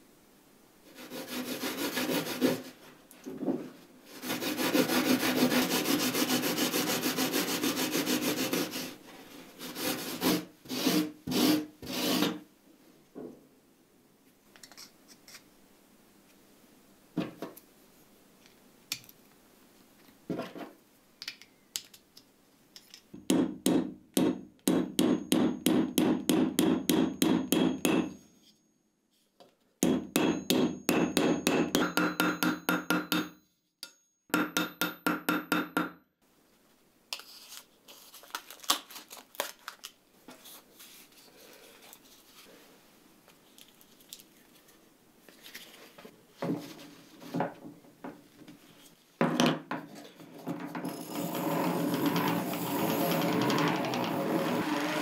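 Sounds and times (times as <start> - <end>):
hammer tapping metal pin: 23.2 - 28.2, 29.8 - 36.0.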